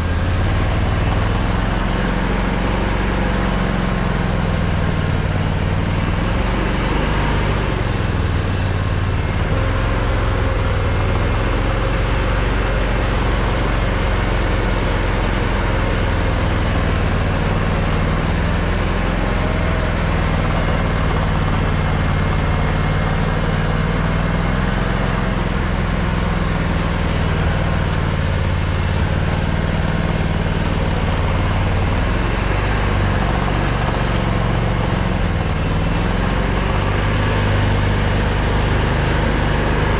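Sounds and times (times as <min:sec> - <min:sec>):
atv engine running under load: 0:00.0 - 0:39.9.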